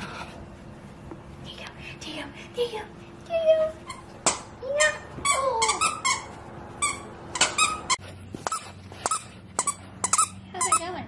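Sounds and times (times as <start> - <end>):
dog toy squeaking: 3.7 - 11.0.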